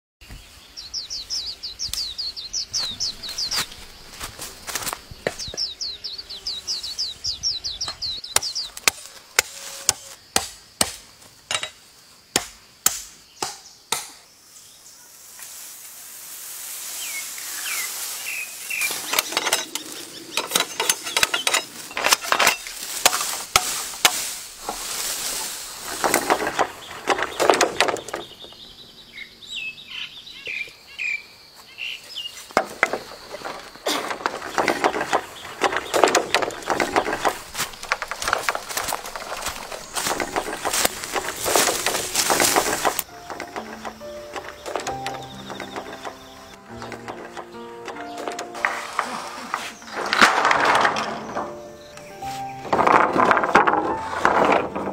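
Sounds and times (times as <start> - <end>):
birds chirping: 0.2 - 10.8, 11.9 - 15.3, 16.8 - 54.8
bamboo leaves rustling: 1.8 - 5.5, 8.7 - 10.2, 14.4 - 28.6, 31.8 - 54.9
bamboo being chopped: 8.4 - 14.3, 20.5 - 28.2, 33.9 - 43.8.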